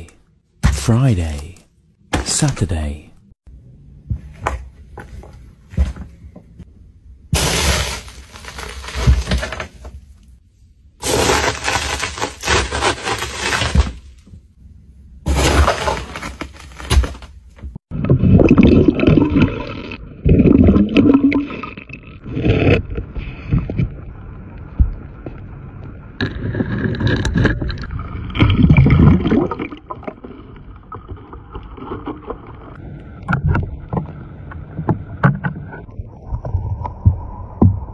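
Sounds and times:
plastic tubes crushed underfoot: 0:07.3 - 0:10.1, 0:11.0 - 0:14.5, 0:15.3 - 0:21.5.

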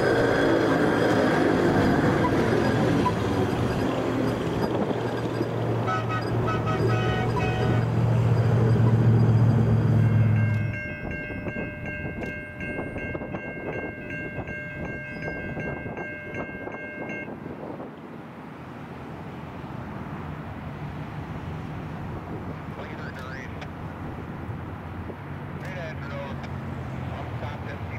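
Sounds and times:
rumble of approaching machine: 0:00.0 - 0:17.7
crane engine drone: 0:00.0 - 0:27.9
pulsing high-pitched ringing chord: 0:09.2 - 0:17.3.

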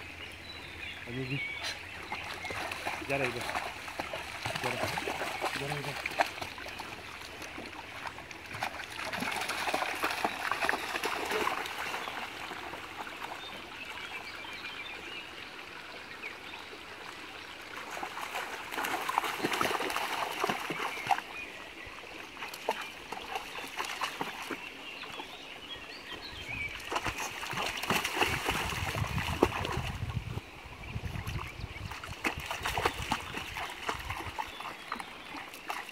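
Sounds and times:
dog splashing in stream: 0:01.1 - 0:15.0, 0:17.1 - 0:30.3, 0:31.0 - 0:35.9.

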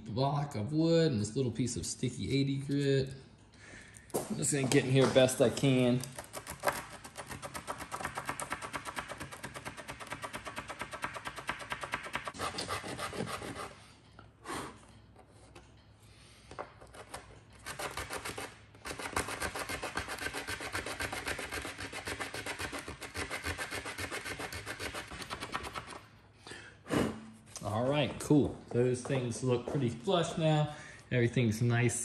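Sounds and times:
sandpaper scrubbing wood: 0:07.1 - 0:13.8, 0:17.6 - 0:26.0.

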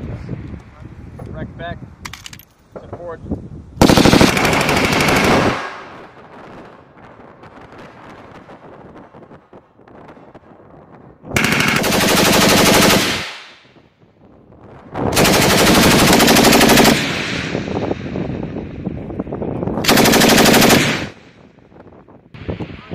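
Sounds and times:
machine gun automatic fire: 0:03.8 - 0:06.1, 0:11.4 - 0:13.6, 0:15.1 - 0:17.9, 0:19.8 - 0:21.2
gunfire echo: 0:03.8 - 0:06.6, 0:11.4 - 0:13.8, 0:15.2 - 0:18.6, 0:19.8 - 0:21.3.

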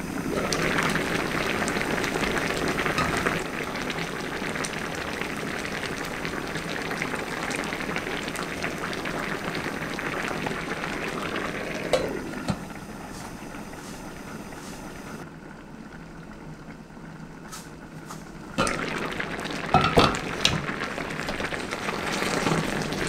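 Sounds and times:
stew bubbling in a pan: 0:00.0 - 0:23.0
glass lid clinking: 0:03.0 - 0:03.4, 0:19.7 - 0:20.2.

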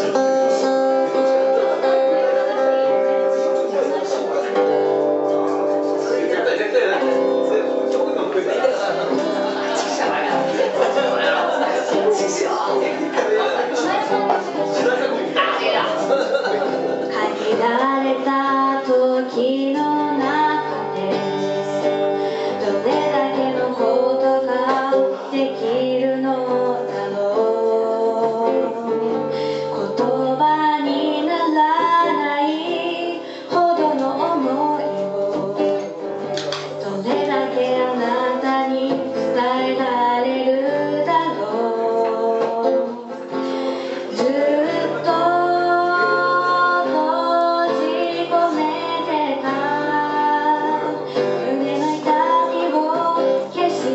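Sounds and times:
woman singing into microphone: 0:00.0 - 0:05.0, 0:16.8 - 0:53.9
acoustic guitar: 0:00.0 - 0:53.9.

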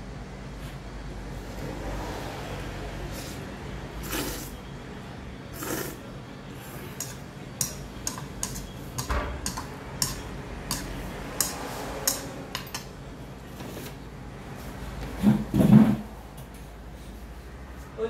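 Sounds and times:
spoon and chopsticks clinking bowl: 0:07.0 - 0:12.9.

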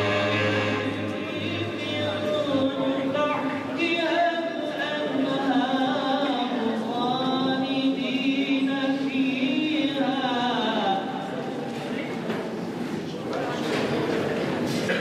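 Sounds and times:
voices chanting long held notes: 0:00.0 - 0:02.2.

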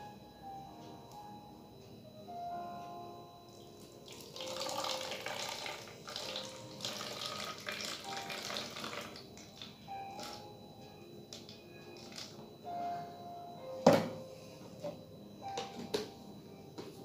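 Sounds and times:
liquid pouring into plastic bottle: 0:04.1 - 0:10.4, 0:12.0 - 0:12.4.

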